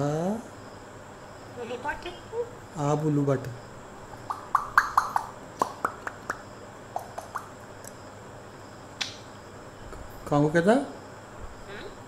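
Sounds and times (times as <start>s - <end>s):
parrot popping clicks: 4.2s - 8.0s.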